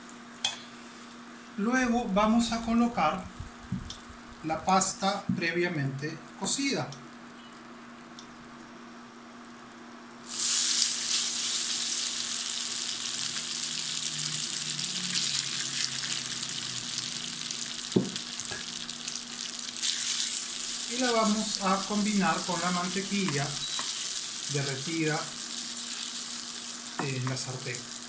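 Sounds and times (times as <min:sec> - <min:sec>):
pasta sizzling in butter: 0:10.2 - 0:28.0.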